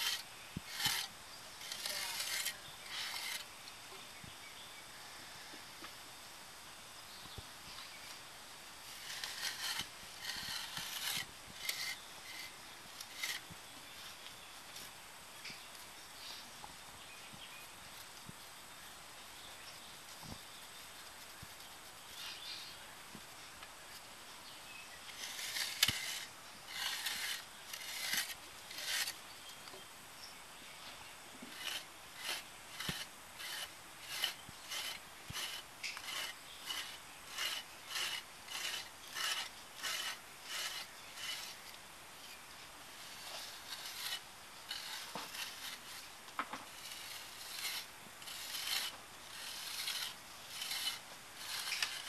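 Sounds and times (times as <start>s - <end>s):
hand tool scraping soil: 0.0s - 3.6s, 8.8s - 13.6s, 25.1s - 29.2s, 31.4s - 41.8s, 42.9s - 52.0s.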